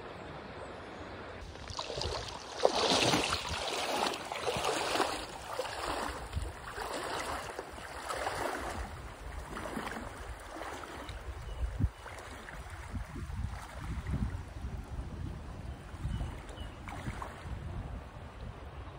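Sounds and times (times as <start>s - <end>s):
river current rushing: 1.4s - 11.0s
water splashing around legs: 1.4s - 14.2s
wind buffeting microphone: 1.5s - 18.9s.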